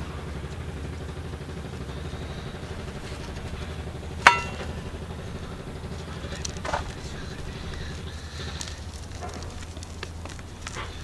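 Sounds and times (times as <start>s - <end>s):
low outdoor rumble: 0.0s - 11.0s
sharp ringing clink: 4.2s - 5.4s.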